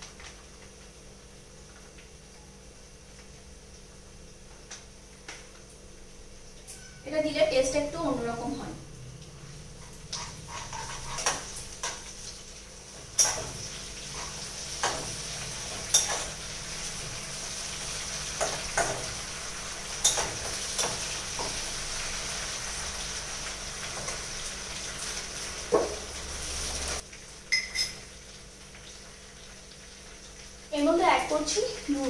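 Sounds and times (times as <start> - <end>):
paste sizzling in a pot: 9.0 - 32.0.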